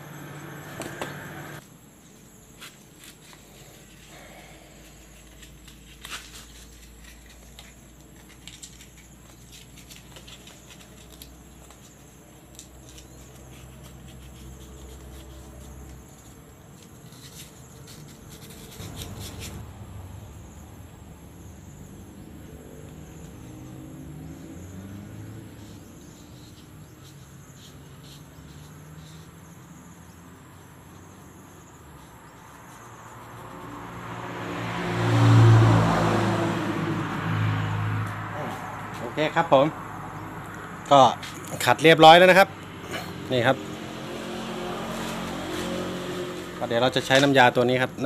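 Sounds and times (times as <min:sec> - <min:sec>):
vehicle engine: 0:00.0 - 0:01.6, 0:03.5 - 0:48.0
sandpaper rubbing on metal shaft: 0:12.8 - 0:19.6.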